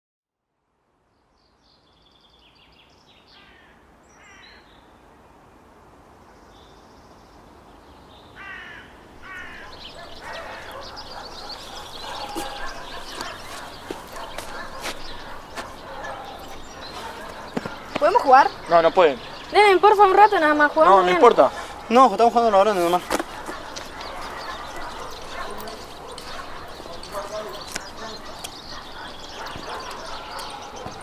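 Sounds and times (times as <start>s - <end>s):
birds chirping: 6.3s - 31.0s.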